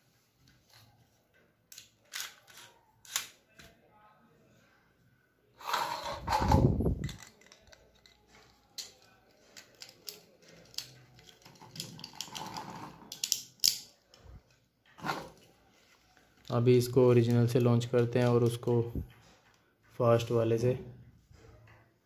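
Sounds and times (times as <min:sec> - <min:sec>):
plastic parts clicking: 0:01.7 - 0:03.7, 0:05.8 - 0:14.6.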